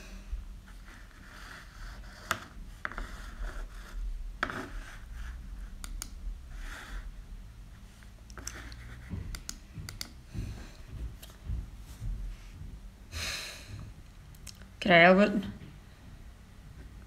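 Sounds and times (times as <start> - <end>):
soft rubbing and scraping: 0.6 - 5.8, 6.5 - 9.3.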